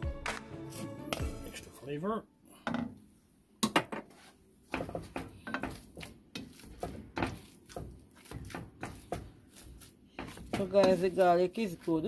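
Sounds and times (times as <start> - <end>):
potato masher squashing potatoes: 4.7 - 12.0.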